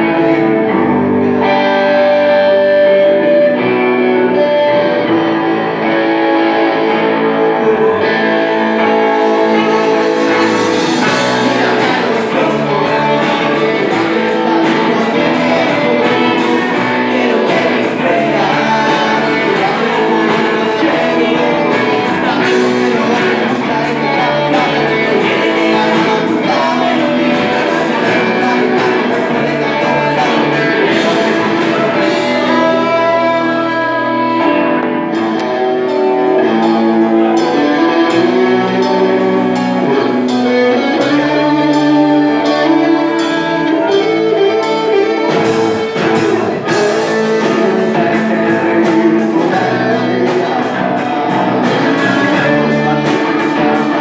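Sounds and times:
electric guitars: 0.0s - 54.0s
man singing: 0.0s - 54.0s
drums on a steady beat: 8.4s - 54.0s.

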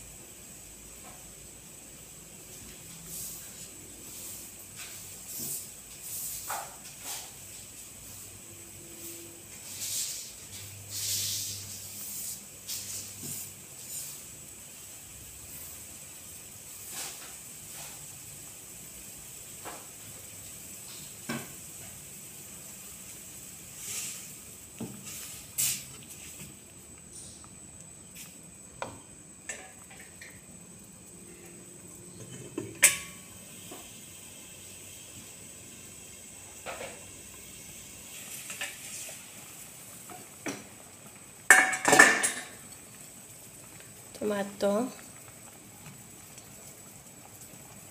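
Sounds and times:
broth bubbling in a wok: 0.0s - 47.9s
pot lid clanking clatter: 32.2s - 33.2s, 41.5s - 42.6s.

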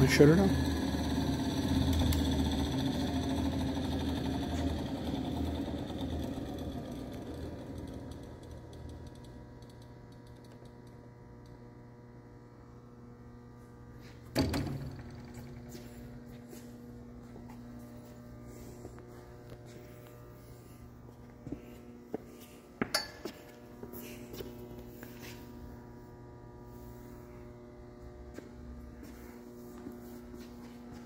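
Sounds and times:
lathe spindle whirring down: 0.0s - 11.6s, 13.6s - 22.2s.

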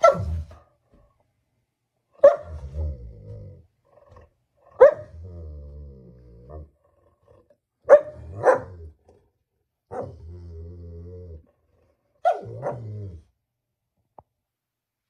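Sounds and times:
dog barking: 0.0s - 0.6s, 2.2s - 2.7s, 4.7s - 5.2s, 7.8s - 8.9s, 9.9s - 10.2s, 12.2s - 13.0s
dog growling: 2.4s - 9.3s, 9.9s - 13.3s.

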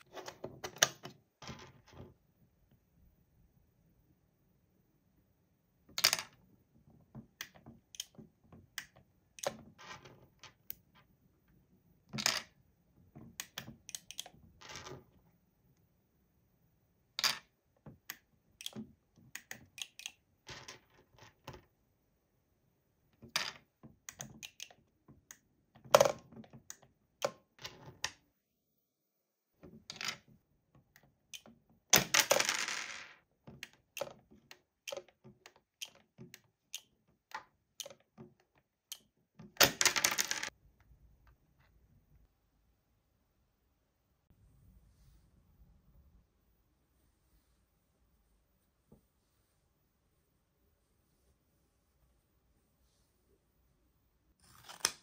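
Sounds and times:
plastic pieces clicking and clattering: 31.4s - 40.5s.

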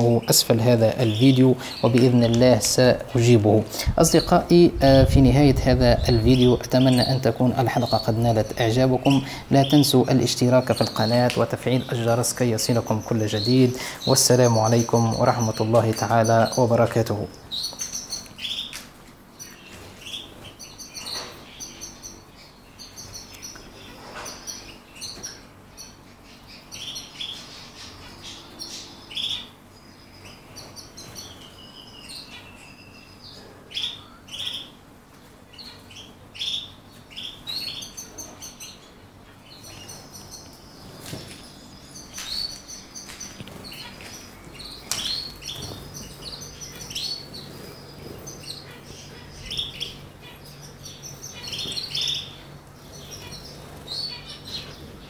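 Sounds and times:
canaries chirping: 0.0s - 55.0s.

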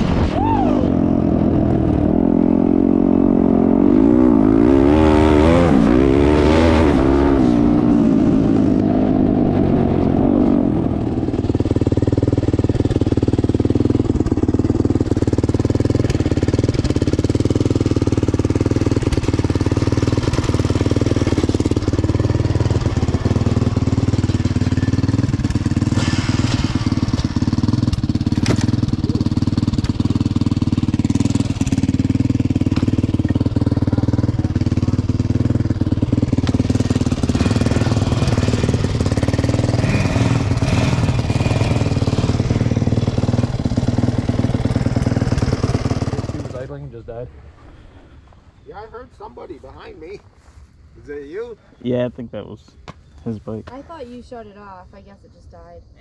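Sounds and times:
dirt bike engine revving: 0.0s - 48.2s
engine idling: 11.1s - 50.6s.

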